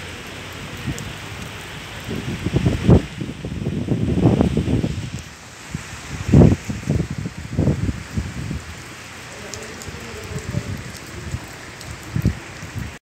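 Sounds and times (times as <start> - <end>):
rain falling: 0.0 - 13.0
wind buffeting microphone: 0.7 - 8.9, 9.5 - 13.0.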